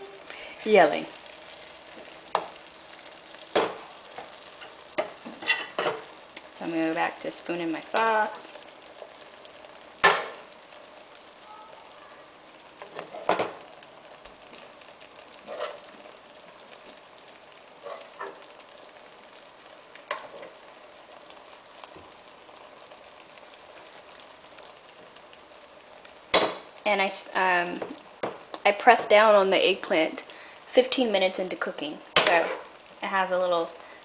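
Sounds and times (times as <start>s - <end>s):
food sizzling in frying pan: 0.0s - 34.0s
spoon knocking against pan: 3.5s - 3.9s.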